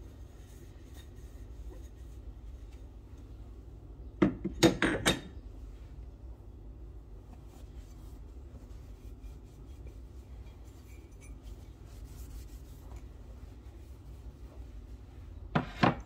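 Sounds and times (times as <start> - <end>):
towel wiping ceramic mug: 0.0 - 3.0, 7.2 - 15.7
low steady hum: 0.0 - 16.0.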